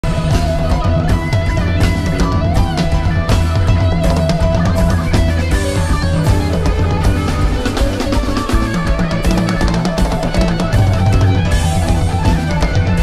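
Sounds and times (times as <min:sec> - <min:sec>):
bass: 0:00.0 - 0:13.0
drum kit: 0:00.0 - 0:13.0
electric guitar soloing: 0:00.0 - 0:13.0.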